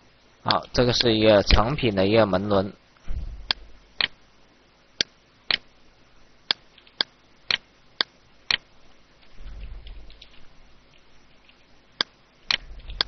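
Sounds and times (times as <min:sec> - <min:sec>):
computer mouse clicks: 0:11.5 - 0:13.0.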